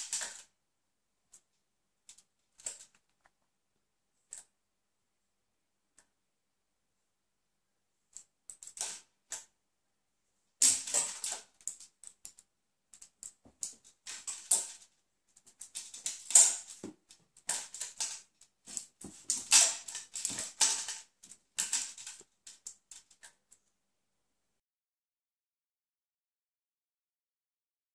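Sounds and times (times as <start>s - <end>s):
plastic toy clattering on tile: 0.0s - 0.5s, 2.1s - 3.2s, 8.2s - 9.5s, 10.6s - 23.4s.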